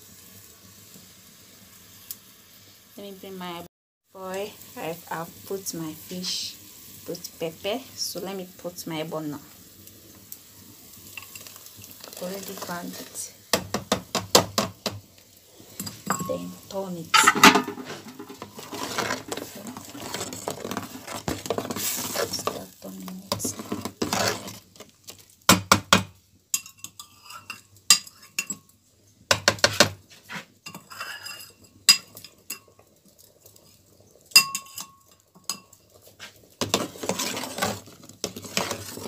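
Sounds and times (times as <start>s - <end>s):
metal spoon scraping a pot: 17.1s - 22.7s, 23.3s - 24.8s, 26.6s - 28.6s, 29.6s - 32.8s, 34.4s - 39.0s
spoon clinking against a pot: 26.5s - 28.7s, 30.6s - 32.8s, 34.3s - 35.8s.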